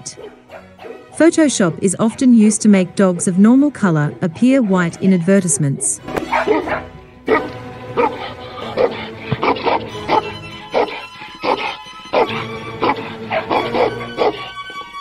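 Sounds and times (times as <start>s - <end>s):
dog barking: 0.0s - 1.8s, 5.7s - 15.0s
background music: 0.0s - 15.0s.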